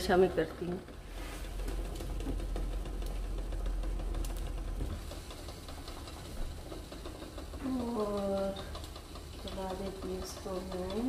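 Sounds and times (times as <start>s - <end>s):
egg rattling in boiling saucepan: 0.0s - 11.0s.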